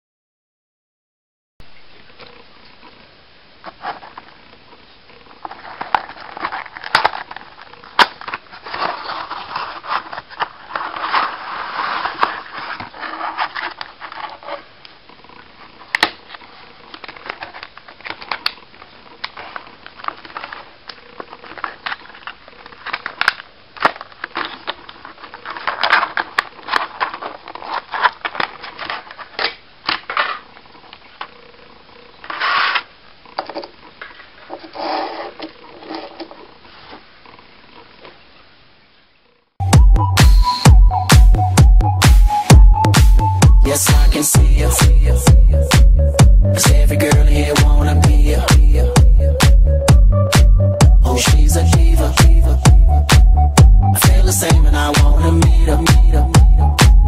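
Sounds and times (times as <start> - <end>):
cardboard rubbing: 5.3 - 30.6, 32.2 - 33.0, 34.0 - 37.2
plastic crinkling: 5.3 - 31.4.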